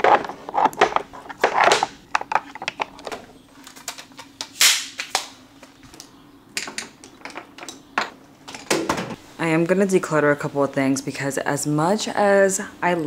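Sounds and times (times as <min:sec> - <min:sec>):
plastic makeup items clattering: 0:00.0 - 0:04.3.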